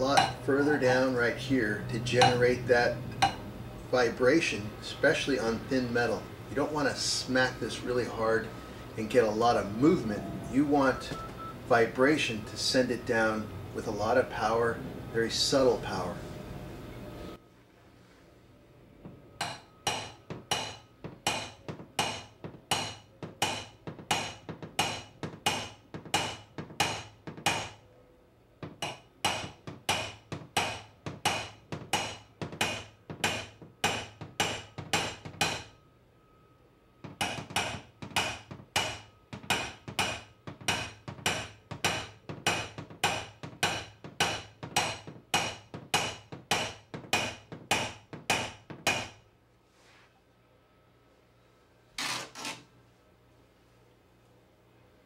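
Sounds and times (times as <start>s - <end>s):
hammer tapping sheet metal: 0.0s - 0.7s, 2.1s - 3.4s, 19.3s - 27.9s, 28.6s - 35.9s, 37.0s - 49.2s.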